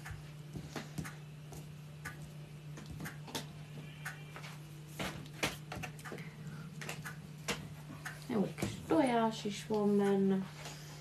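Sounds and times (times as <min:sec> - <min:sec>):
hands clicking and tapping dough: 0:00.0 - 0:04.3
steady low hum: 0:00.0 - 0:11.0.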